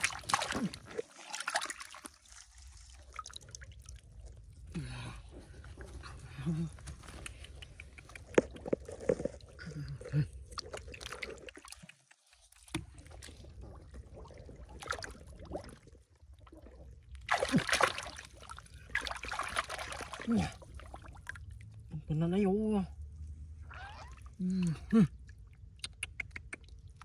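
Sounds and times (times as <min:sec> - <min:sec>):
shallow water splashing: 0:00.0 - 0:04.7, 0:05.3 - 0:21.9, 0:23.2 - 0:25.5.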